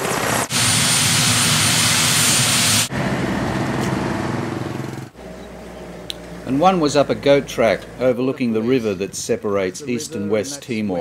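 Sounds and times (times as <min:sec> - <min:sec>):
helicopter rotor and turbine noise: 0:00.0 - 0:05.2
low engine sound: 0:00.0 - 0:09.9.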